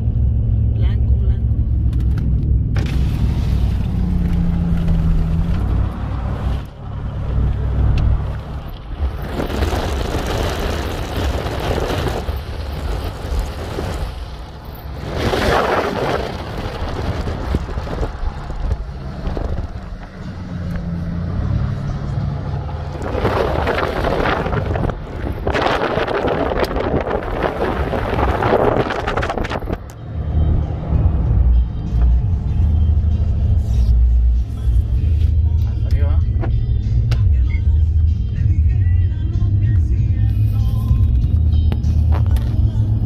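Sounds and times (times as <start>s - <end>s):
engine and road rumble: 0.0s - 43.0s
wind rushing over microphone: 3.2s - 32.7s.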